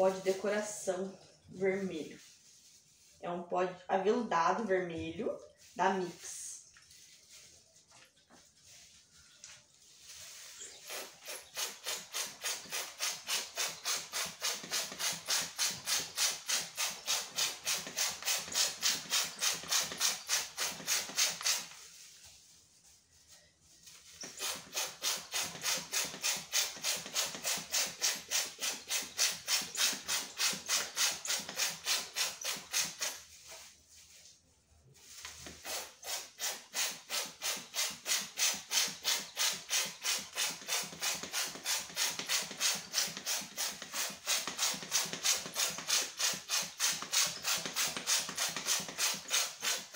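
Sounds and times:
powder sprayer hissing puffs: 10.0s - 22.0s, 23.8s - 33.8s, 35.0s - 49.9s.

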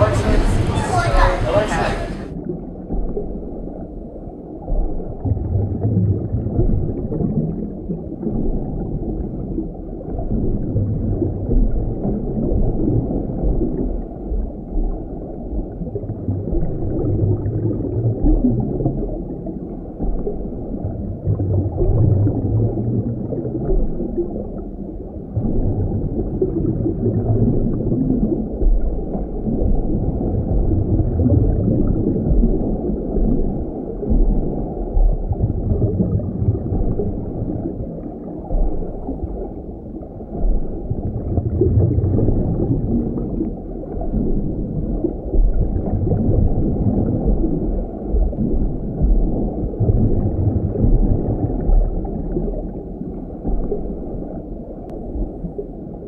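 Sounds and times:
low underwater rumble: 0.0s - 56.0s.

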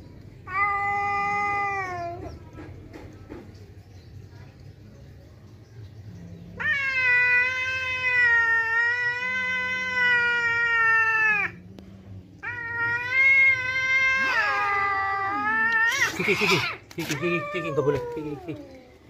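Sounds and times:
cat yowling: 0.4s - 2.3s, 6.6s - 11.6s, 12.4s - 18.8s.

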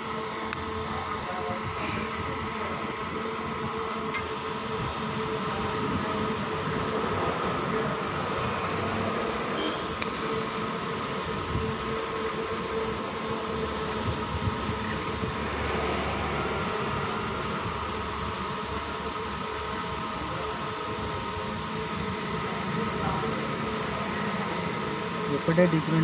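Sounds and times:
fan whirring hum: 0.0s - 26.0s
faint short high beeps: 3.9s - 4.4s.

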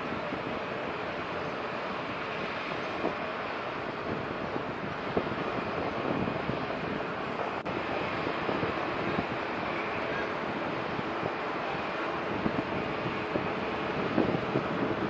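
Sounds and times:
wind hiss: 0.0s - 15.0s.

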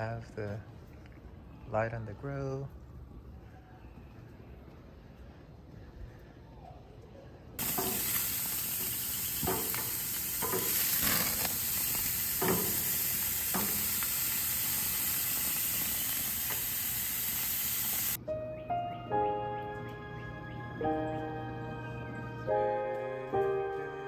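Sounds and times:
steaks sizzling on grill: 7.6s - 18.2s
music: 18.2s - 24.0s.

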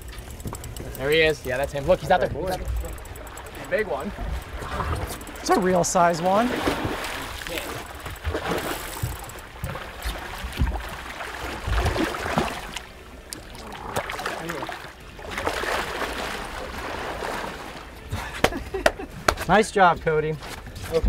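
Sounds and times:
fish splashing in water: 6.4s - 17.9s.

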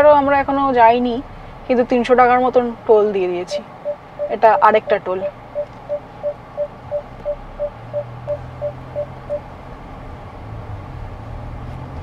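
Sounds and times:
steady low hum: 0.5s - 9.4s
electronic beeper short high beeps: 3.5s - 4.9s, 5.5s - 9.4s.

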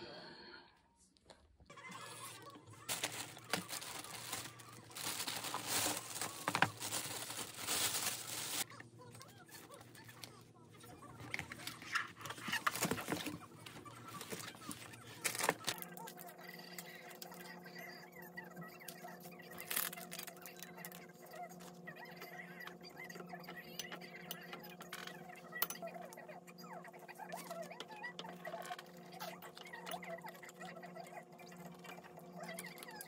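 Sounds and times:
plastic bag rustling: 1.8s - 8.7s, 11.1s - 15.8s, 19.6s - 20.3s
cardboard boxes crackling: 2.9s - 8.7s, 12.3s - 13.4s.

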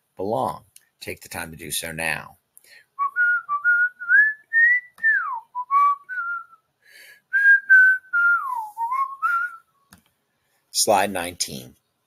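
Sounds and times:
person whistling a tune: 3.0s - 6.7s, 7.3s - 9.7s.

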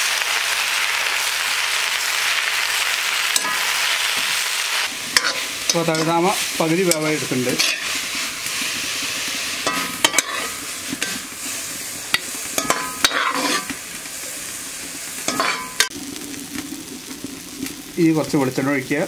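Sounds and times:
leaves sizzling in oil: 0.0s - 19.0s
metal spatula scraping: 5.1s - 13.8s, 15.2s - 15.9s
spatula clinking on metal: 5.2s - 6.2s, 6.9s - 8.0s, 9.6s - 11.2s, 12.1s - 13.7s, 15.3s - 15.9s.

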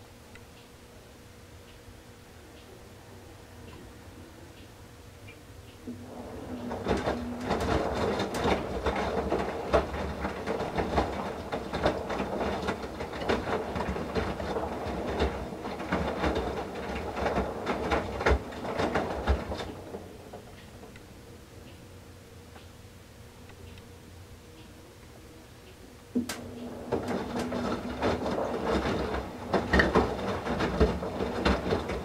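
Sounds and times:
washing machine drum tumbling: 5.9s - 20.9s, 26.2s - 32.0s.

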